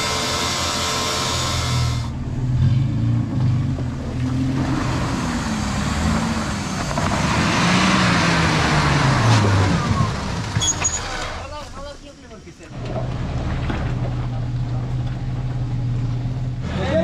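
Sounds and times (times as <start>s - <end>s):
engine revving: 0.0s - 11.4s.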